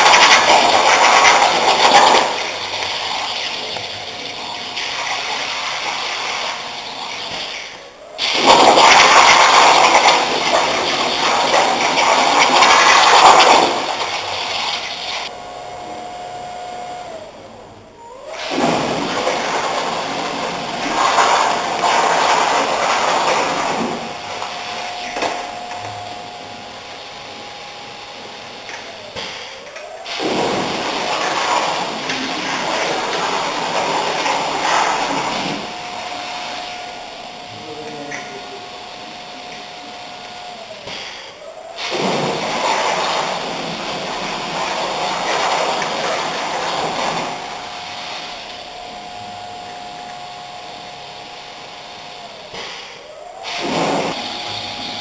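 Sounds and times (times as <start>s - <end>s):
plasma torch hissing: 0.0s - 15.3s, 40.8s - 48.9s, 50.7s - 55.0s
steady whine: 0.0s - 55.0s.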